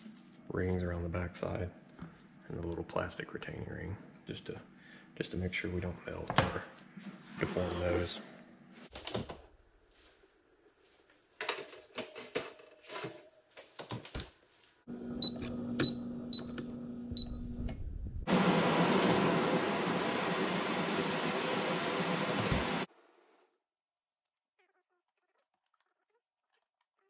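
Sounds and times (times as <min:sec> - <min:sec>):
control panel beeping: 0:15.2 - 0:17.5.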